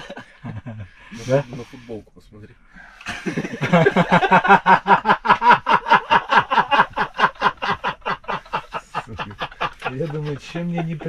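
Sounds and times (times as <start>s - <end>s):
man laughing hard: 3.1s - 11.0s.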